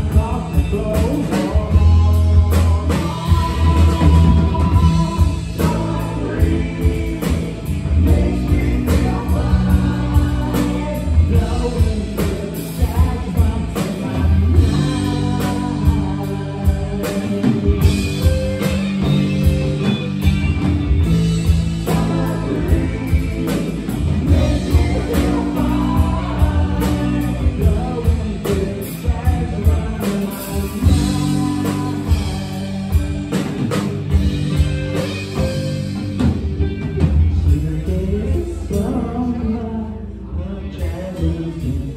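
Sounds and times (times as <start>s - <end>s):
drum kit: 0.0s - 39.7s
electric bass: 0.0s - 41.9s
electric guitar: 0.0s - 41.9s
person singing: 0.0s - 41.9s.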